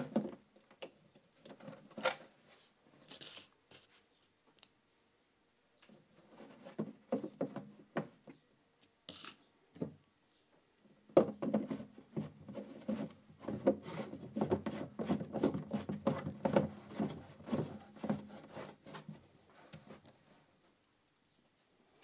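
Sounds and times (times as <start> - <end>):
plastic threads scraping: 11.4 - 20.2.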